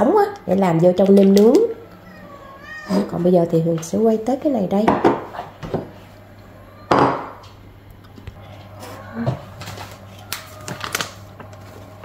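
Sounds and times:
steady low hum: 0.0 - 12.0
loud knock on a counter: 4.9 - 5.9, 6.9 - 7.4.

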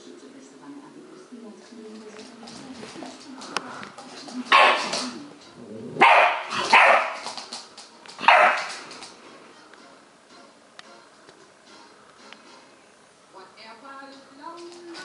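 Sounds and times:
puppy barking: 4.5 - 5.1, 6.0 - 7.4, 8.2 - 8.9.

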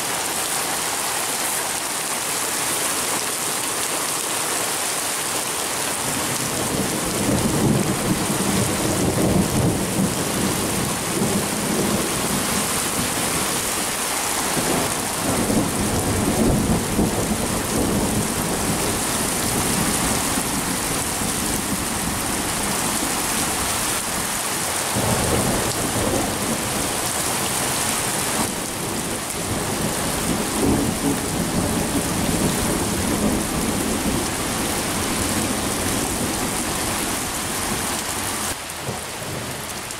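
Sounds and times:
heavy rain: 0.0 - 39.9
thunder rumbling: 6.6 - 24.3.

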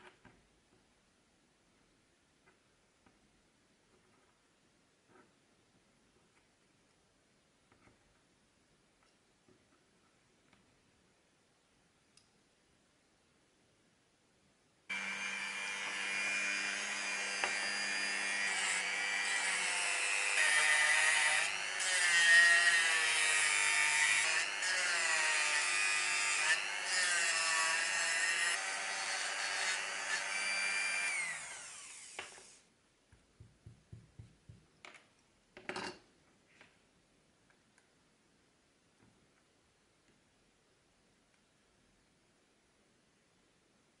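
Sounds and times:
rotary tool sanding wood: 14.9 - 32.6.

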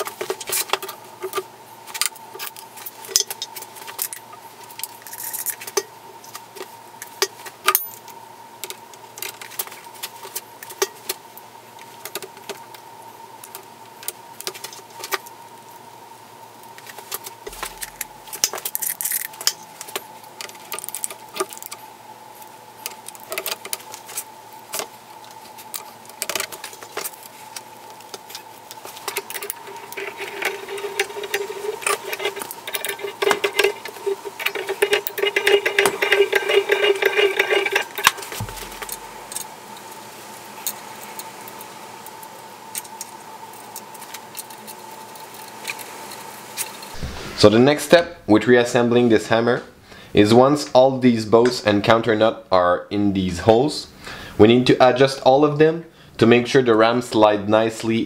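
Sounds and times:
faint steady hum: 0.0 - 58.0
steel parts clinking: 28.9 - 39.5.

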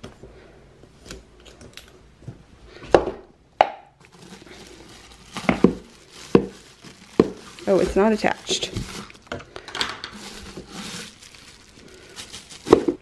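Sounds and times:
bubble wrap crinkling: 3.9 - 13.0.

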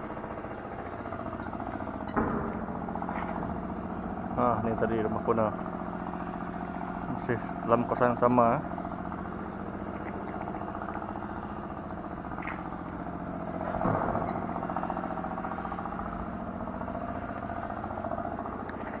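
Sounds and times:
engine running: 0.0 - 19.0.

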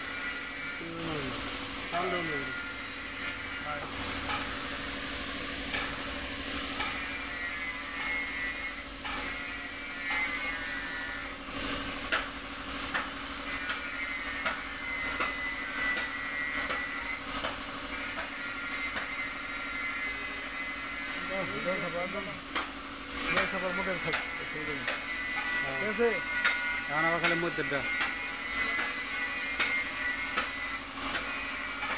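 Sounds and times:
low mechanical hum: 0.0 - 31.9.

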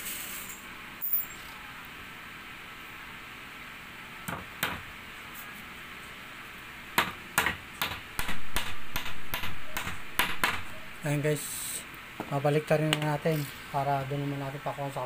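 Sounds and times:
hammer driving nails into wood: 7.0 - 10.7.

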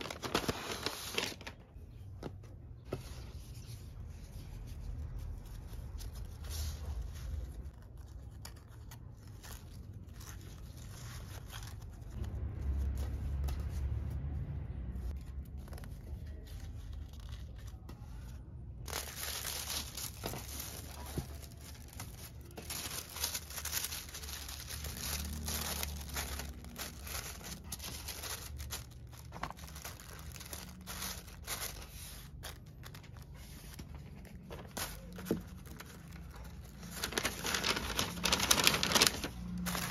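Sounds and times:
tissue paper rustling and crinkling: 0.0 - 2.2, 2.8 - 14.4, 15.0 - 39.9
hands handling a ribbon: 15.2 - 39.9.

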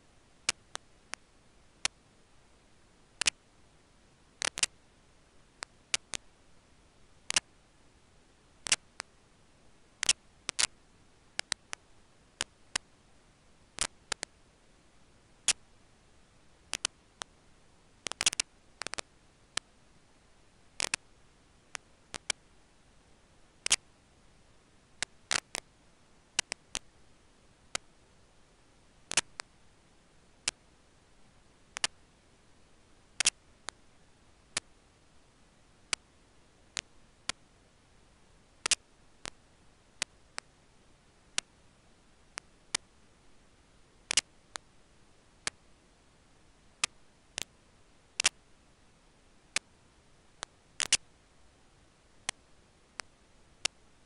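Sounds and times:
faint steady hiss: 0.0 - 54.0
sharp clicks: 3.2 - 3.4, 4.4 - 4.8, 7.3 - 7.5, 8.6 - 9.1, 10.0 - 10.8, 11.4 - 11.8, 13.8 - 14.3, 16.7 - 17.3, 18.0 - 19.7, 23.6 - 23.8, 25.0 - 25.6, 26.4 - 26.9, 29.1 - 29.5, 31.7 - 32.0, 33.2 - 33.8, 38.6 - 39.4, 44.1 - 44.6, 48.2 - 48.4, 50.4 - 51.0.

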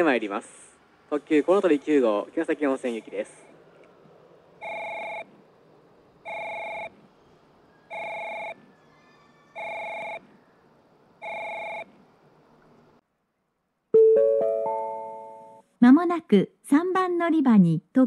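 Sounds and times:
electronic train approach warning tone: 4.6 - 5.4, 6.2 - 12.0, 14.0 - 15.6.

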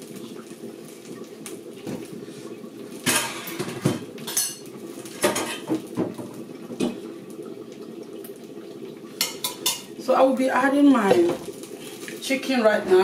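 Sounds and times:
metal pots and utensils clattering: 3.0 - 7.0, 9.2 - 9.9.

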